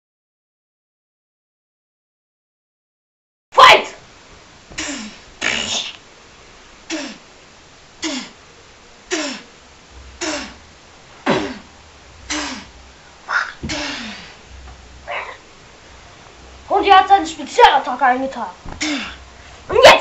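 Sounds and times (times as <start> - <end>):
breathy vocal punch sounds: 13.3 - 14.4, 18.7 - 19.2.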